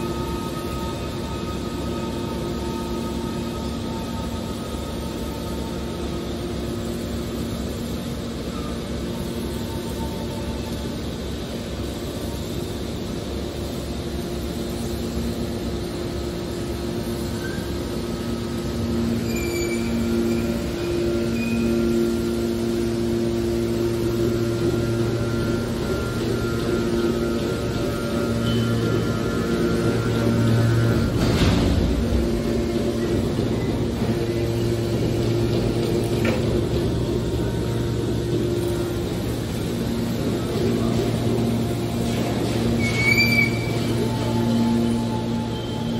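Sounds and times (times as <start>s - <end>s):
hydraulic machine humming: 0.0s - 45.9s.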